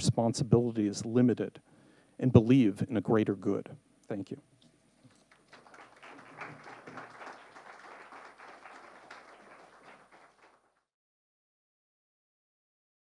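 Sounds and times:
audience applauding: 0:05.1 - 0:10.9.

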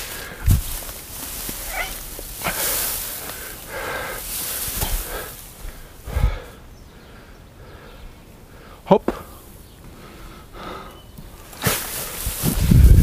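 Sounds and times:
dull thumps of hay bales: 0:00.0 - 0:03.6, 0:04.2 - 0:05.8, 0:11.2 - 0:13.0
rustling: 0:00.0 - 0:06.0, 0:11.2 - 0:13.0.

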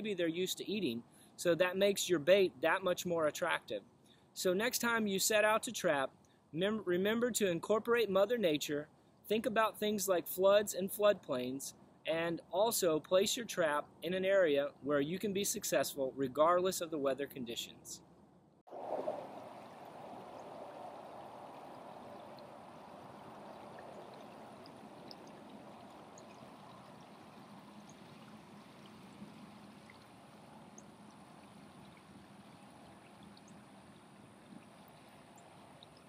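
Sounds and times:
floodwater rushing: 0:18.7 - 0:30.6.

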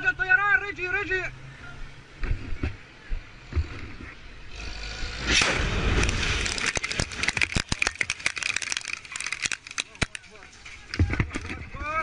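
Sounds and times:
bomb explosion: 0:05.3 - 0:06.6.

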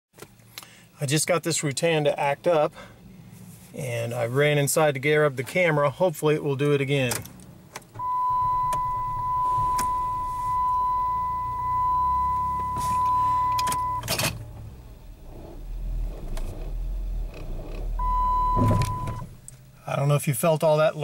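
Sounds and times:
car engine running and surging: 0:07.4 - 0:19.8
loud electronic beep: 0:08.0 - 0:14.0, 0:18.0 - 0:19.3.

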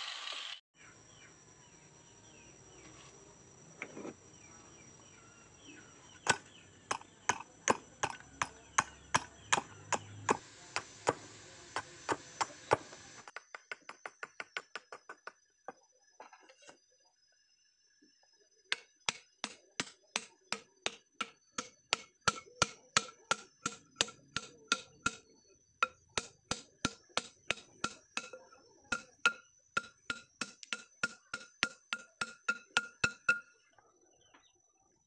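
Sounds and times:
blade knocking wooden plug: 0:06.3 - 0:15.4, 0:18.7 - 0:33.5.

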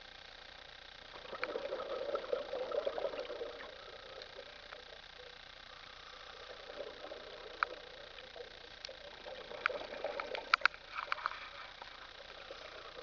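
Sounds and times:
low underwater hiss: 0:00.0 - 0:13.0
sharp clicks and ticks: 0:09.6 - 0:11.3.

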